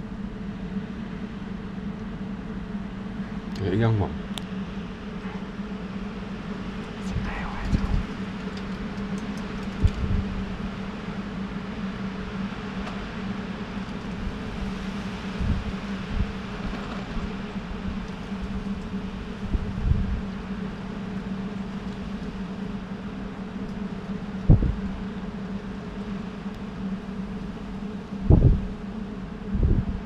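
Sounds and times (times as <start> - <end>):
low mechanical hum: 0.0 - 30.0
soft low thumps: 24.5 - 24.8, 28.3 - 28.7.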